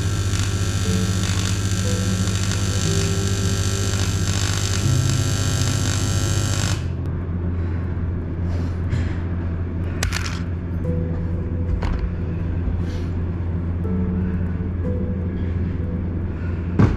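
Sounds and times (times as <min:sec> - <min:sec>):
welding arc buzzing: 0:00.0 - 0:07.1
low hum: 0:00.0 - 0:16.9.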